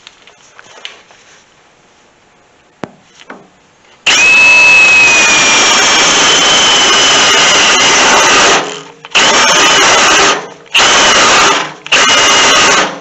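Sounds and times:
cordless drill drilling steel: 0:04.0 - 0:13.0.

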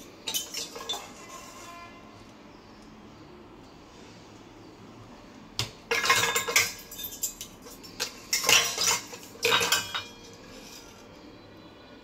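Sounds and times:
metal pots and bowls clanking: 0:00.0 - 0:01.9, 0:05.6 - 0:11.0.

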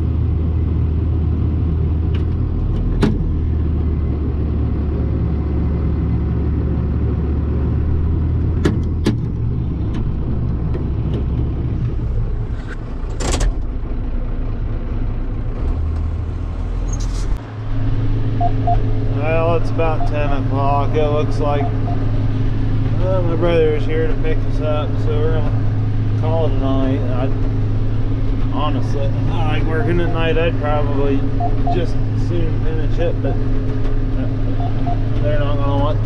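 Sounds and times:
tractor diesel engine running: 0:00.0 - 0:36.0
sharp clicks and knocks: 0:08.4 - 0:12.0.

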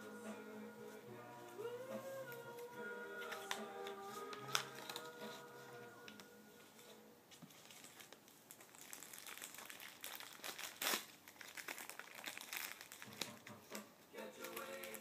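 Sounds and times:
paper and plastic packets crinkling: 0:03.2 - 0:15.0.

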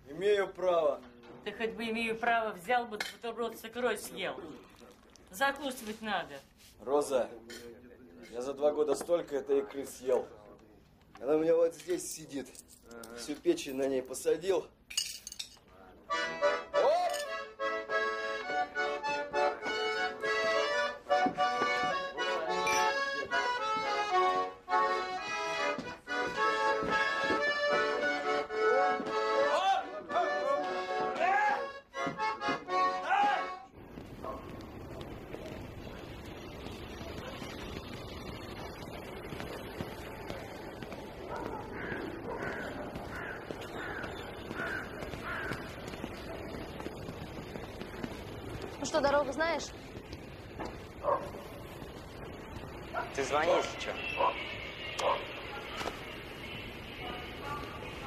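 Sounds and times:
outdoor background noise: 0:00.0 - 0:58.0
accordion music: 0:16.0 - 0:33.8
crow cawing: 0:41.3 - 0:46.4.

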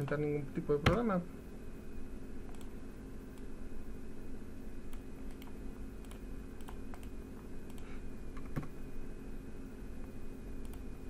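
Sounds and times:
steady low hum: 0:00.0 - 0:11.0
mouse and keyboard clicks: 0:04.9 - 0:07.1.

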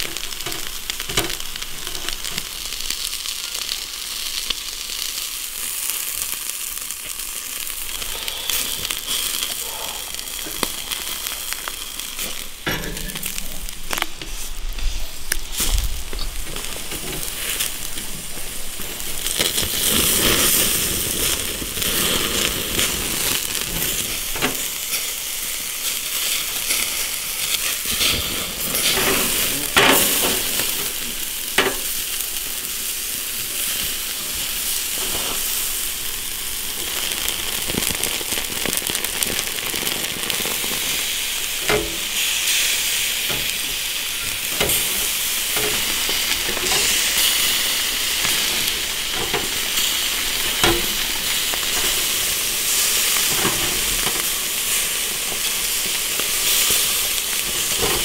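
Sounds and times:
fat crackling and popping: 0:00.0 - 0:58.0
meat sizzling on a grill: 0:00.0 - 0:58.0.

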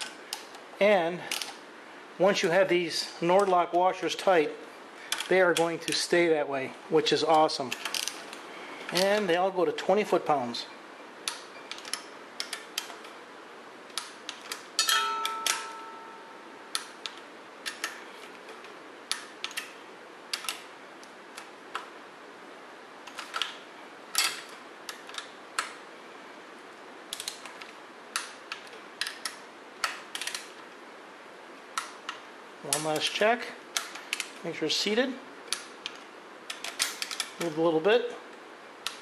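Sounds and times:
metallic clang: 0:14.8 - 0:16.4.

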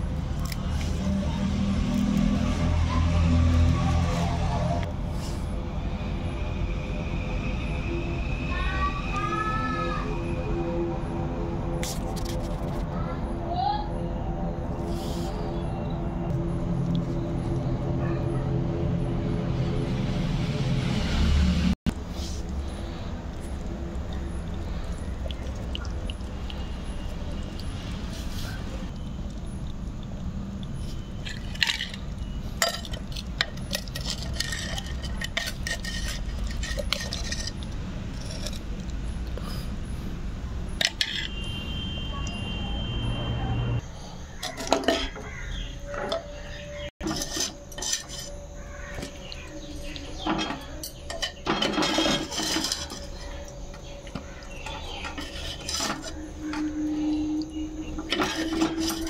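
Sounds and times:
metal ladle clinking on pot: 0:57.9 - 0:59.0.

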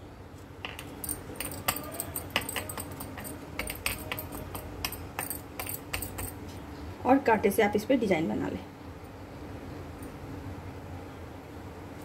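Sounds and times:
bangles clinking: 0:00.7 - 0:06.4.

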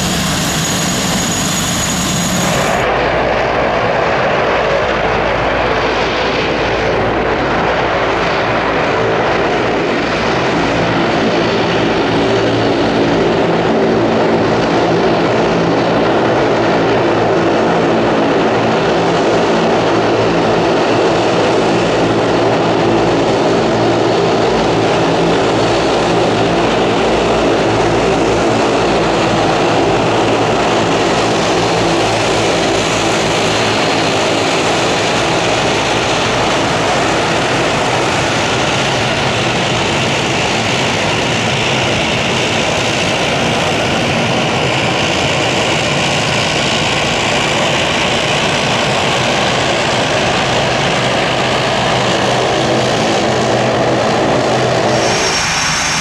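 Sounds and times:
aircraft engines roaring: 0:00.0 - 0:56.0
higher hiss: 0:54.9 - 0:56.0.

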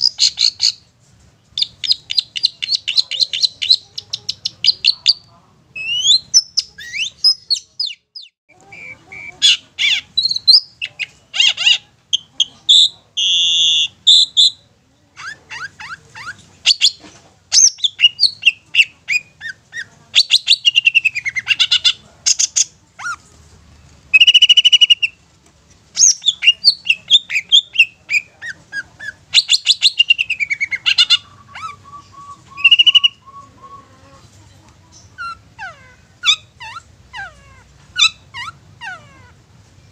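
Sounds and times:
shrike singing: 0:26.0 - 0:34.3.

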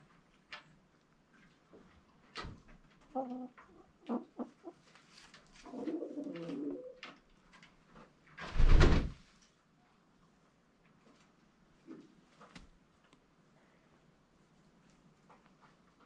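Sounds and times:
hen clucking softly: 0:03.0 - 0:05.0, 0:05.6 - 0:07.0.

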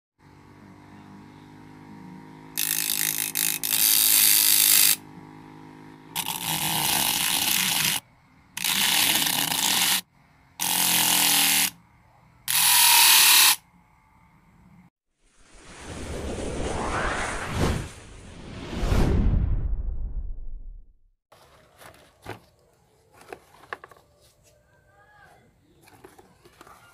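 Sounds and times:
small motor humming: 0:00.2 - 0:11.8, 0:12.4 - 0:13.6
blade scraping spinning sandpaper: 0:02.5 - 0:05.1, 0:06.1 - 0:08.0, 0:08.6 - 0:11.8, 0:12.5 - 0:13.6.

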